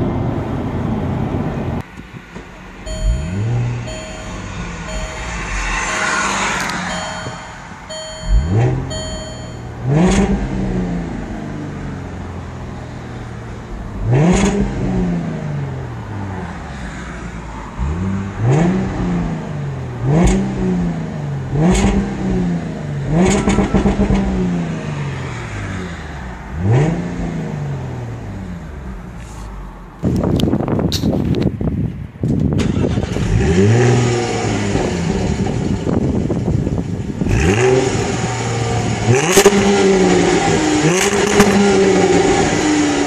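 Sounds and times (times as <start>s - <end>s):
car engine revving: 2.6s - 30.3s, 32.6s - 43.0s
short electronic beeps: 2.9s - 9.7s.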